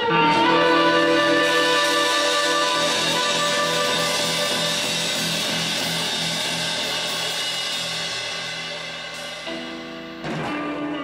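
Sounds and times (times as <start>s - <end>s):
harmonica: 0.0s - 6.2s
blues band playing: 0.0s - 11.0s
cymbal wash: 0.3s - 11.0s.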